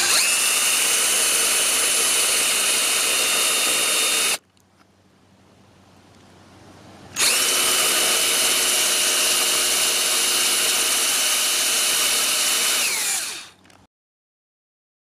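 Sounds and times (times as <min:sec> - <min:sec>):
power drill boring into wood: 0:00.0 - 0:04.4, 0:07.2 - 0:13.6.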